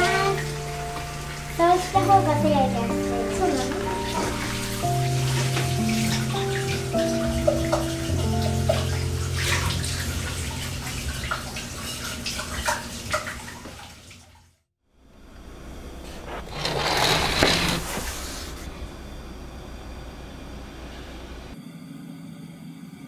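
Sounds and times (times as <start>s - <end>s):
tap water running into sink: 0.0s - 2.6s, 3.2s - 14.4s.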